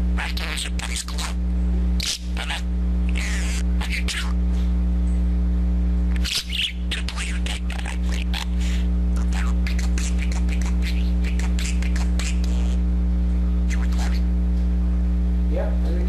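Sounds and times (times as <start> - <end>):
loud electrical hum: 0.0 - 16.0
budgerigar chattering: 0.1 - 1.4, 2.0 - 4.4, 6.1 - 12.8, 13.7 - 14.3.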